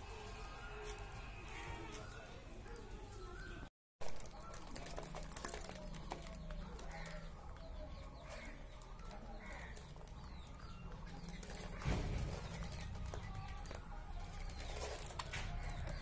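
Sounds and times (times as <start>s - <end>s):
birds pecking seed clicks: 4.0s - 16.0s.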